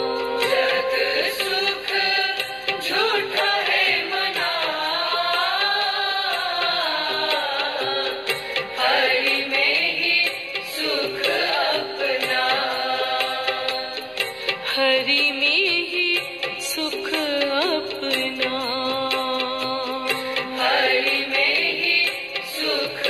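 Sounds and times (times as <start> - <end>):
wavering gliding melody: 0.0 - 2.6.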